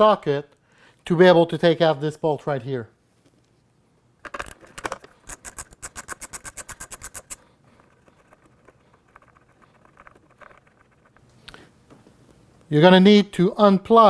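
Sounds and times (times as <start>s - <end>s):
socket ratchet clicking: 4.3s - 7.4s.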